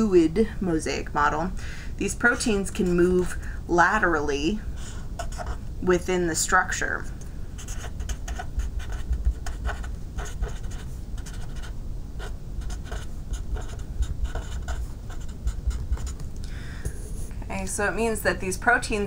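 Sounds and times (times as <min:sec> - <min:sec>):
low background rumble: 0:00.0 - 0:19.0
marker scratching on paper: 0:05.2 - 0:05.6, 0:07.6 - 0:16.2.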